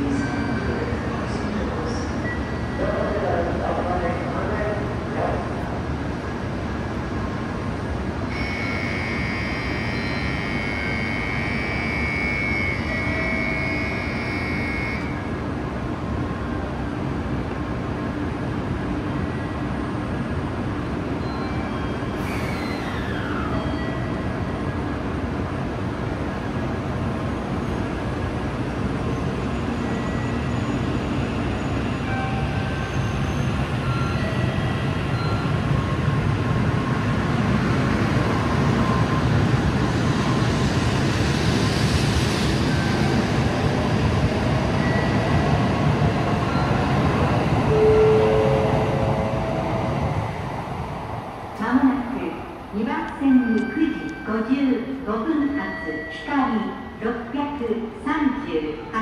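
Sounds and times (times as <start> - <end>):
train rumble and hiss: 0.0 - 55.7.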